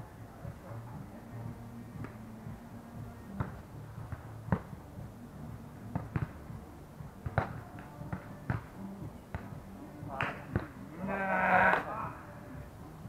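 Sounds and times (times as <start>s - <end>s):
volleyball hit slaps: 7.2s - 8.7s.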